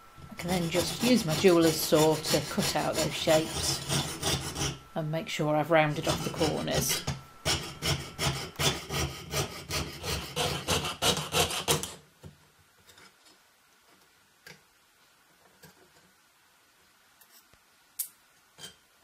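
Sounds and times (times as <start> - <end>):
saw cutting metal sheet: 0.4 - 4.9, 5.8 - 12.0.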